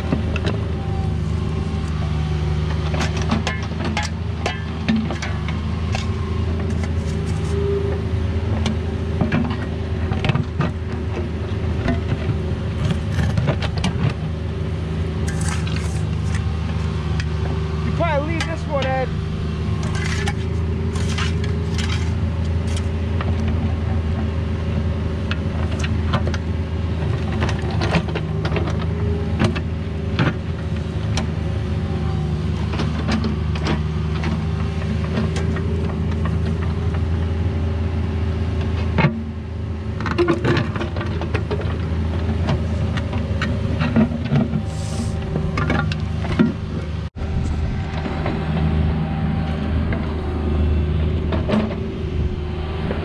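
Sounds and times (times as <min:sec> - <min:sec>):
excavator diesel engine running: 0:00.0 - 0:53.0
bucket clanking and scraping: 0:02.8 - 0:07.6, 0:11.8 - 0:14.2, 0:15.2 - 0:17.3, 0:17.9 - 0:19.1, 0:19.7 - 0:23.6, 0:40.0 - 0:48.7.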